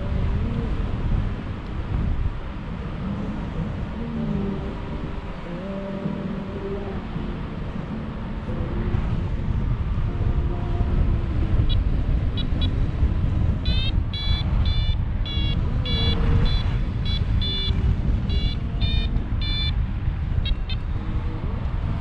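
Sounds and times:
wind rumble on microphone: 0.0s - 22.0s
variometer beeping: 11.5s - 13.0s, 13.6s - 20.9s.

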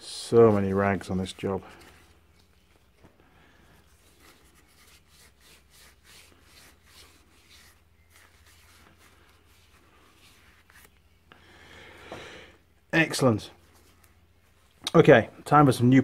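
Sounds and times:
cloth rag rubbing metal: 0.1s - 2.6s, 3.8s - 11.0s.

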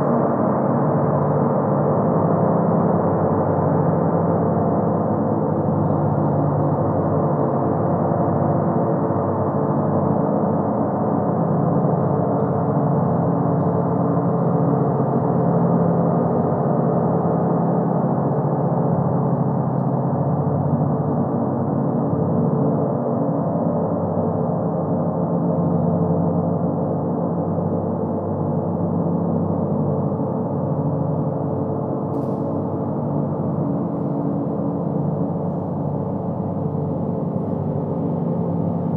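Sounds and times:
large gong sustained wash: 22.8s - 38.9s.

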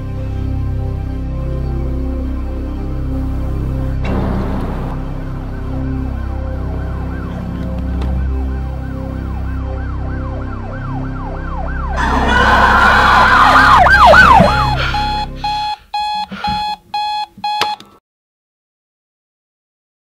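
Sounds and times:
siren wailing: 5.4s - 17.2s
woman screaming: 12.0s - 15.0s
alarm clock beeping: 13.6s - 17.8s.

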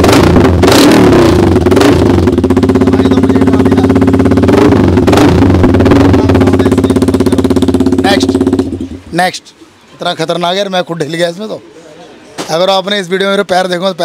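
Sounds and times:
motorcycle engine running loudly: 0.0s - 9.0s.

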